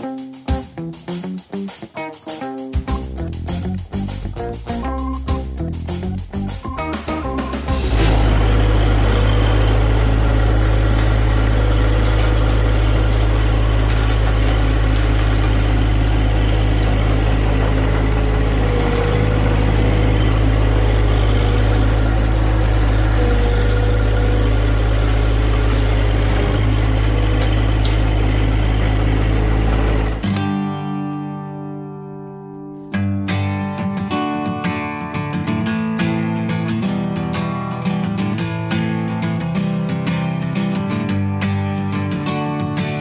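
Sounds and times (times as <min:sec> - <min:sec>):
tractor engine under load: 0:05.0 - 0:30.3
rototiller churning soil: 0:06.7 - 0:30.4.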